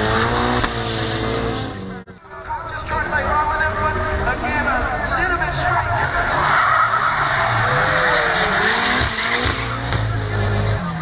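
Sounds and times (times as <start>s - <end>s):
car engine running: 0.0s - 11.0s
tyres screeching: 5.0s - 11.0s.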